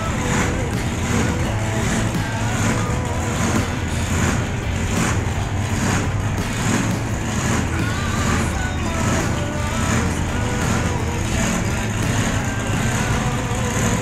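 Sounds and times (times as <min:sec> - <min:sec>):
diesel engine running hard: 0:00.0 - 0:14.0.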